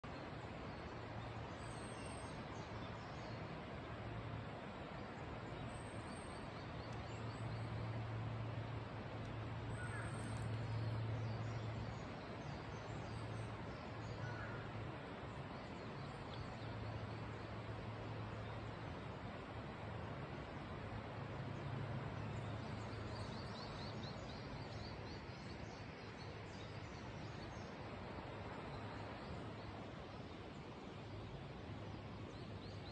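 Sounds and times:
faint high bird calls: 0:09.7 - 0:11.0.

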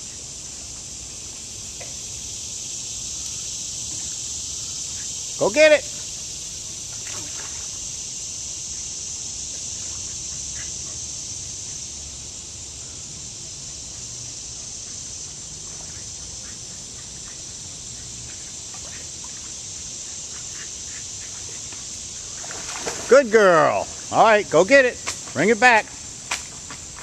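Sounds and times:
insects chirring: 0:00.0 - 0:27.0
river water flowing: 0:13.3 - 0:25.7
dog splashing in water: 0:22.4 - 0:23.3.

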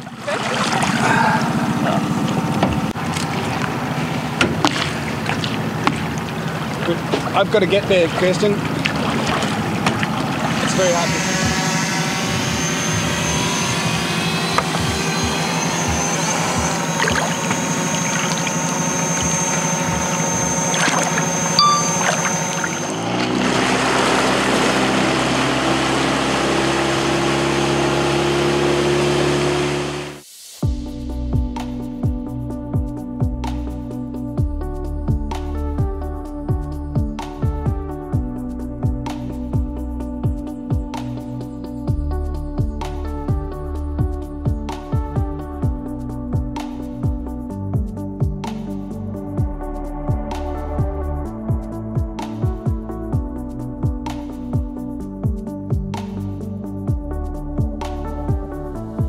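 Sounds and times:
outboard motor idling: 0:00.0 - 0:30.2.

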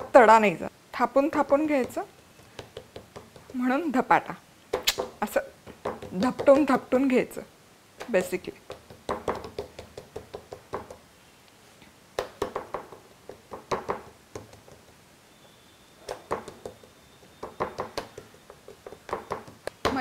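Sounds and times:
fingertips patting dough on board: 0:01.2 - 0:03.9, 0:04.7 - 0:07.0, 0:08.0 - 0:11.0, 0:12.2 - 0:15.0, 0:16.0 - 0:20.0.

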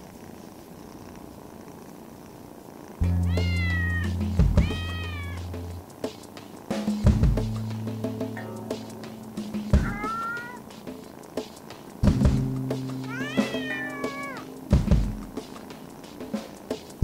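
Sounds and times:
cat purring: 0:00.0 - 0:07.8, 0:08.7 - 0:17.0
cat meowing: 0:03.0 - 0:05.5, 0:09.8 - 0:10.6, 0:13.0 - 0:14.5
music with held bass note: 0:03.0 - 0:05.8, 0:06.8 - 0:10.0, 0:12.0 - 0:15.6.

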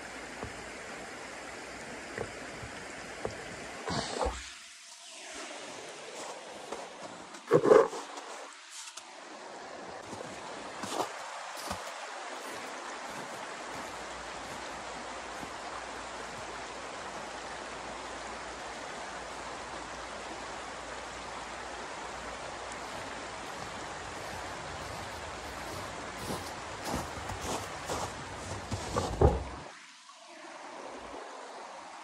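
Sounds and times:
footsteps crunching in snow: 0:06.1 - 0:09.0, 0:10.0 - 0:16.5, 0:22.7 - 0:29.6.

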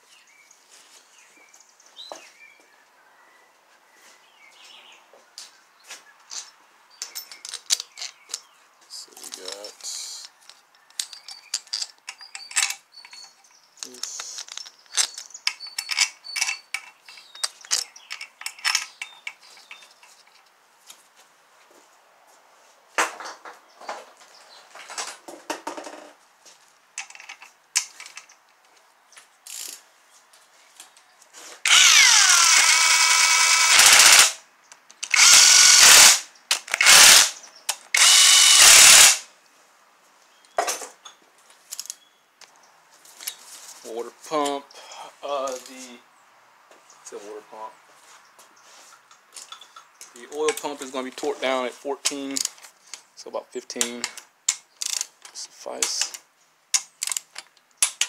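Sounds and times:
tools clicking on metal: 0:06.4 - 0:08.5, 0:09.1 - 0:20.1, 0:31.7 - 0:39.2, 0:52.0 - 0:53.0, 0:53.7 - 0:58.0
cordless power tool bursts: 0:31.6 - 0:34.4, 0:35.0 - 0:39.3.

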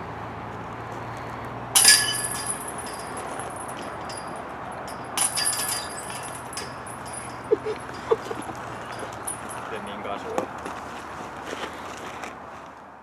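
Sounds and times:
discs hitting metal chains: 0:01.8 - 0:09.7.

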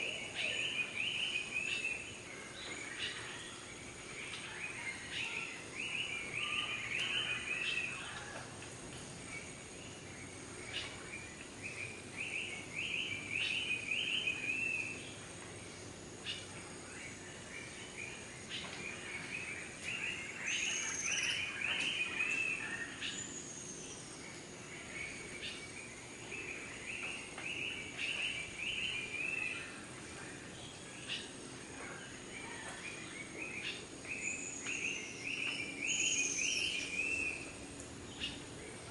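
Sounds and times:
birds singing: 0:00.0 - 0:38.9
whistled bird calls: 0:32.4 - 0:37.5.

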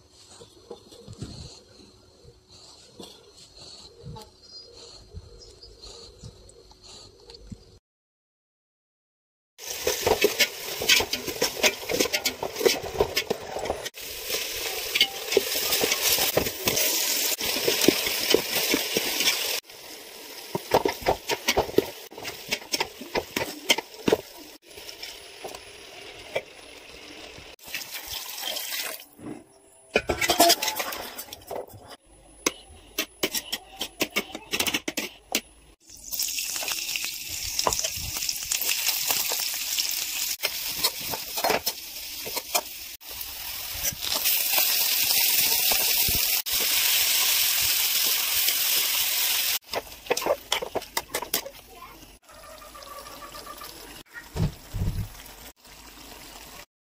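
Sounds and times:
onions sizzling in oil: 0:09.6 - 0:29.0, 0:35.8 - 0:56.7
spoon stirring and scraping pot: 0:09.8 - 0:19.6, 0:20.5 - 0:24.4, 0:30.0 - 0:35.5, 0:49.6 - 0:51.6.

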